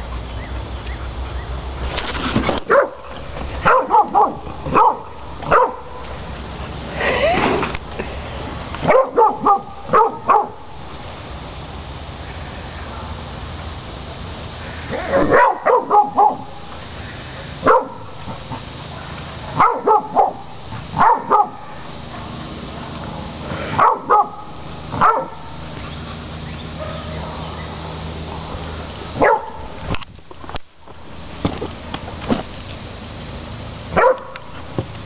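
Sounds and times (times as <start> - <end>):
dog barking: 2.7 - 3.0, 3.6 - 6.0, 8.8 - 10.6, 15.1 - 16.6, 17.6 - 18.1, 18.9 - 22.4, 23.8 - 25.5, 26.8 - 27.5, 29.2 - 29.7, 34.0 - 34.4.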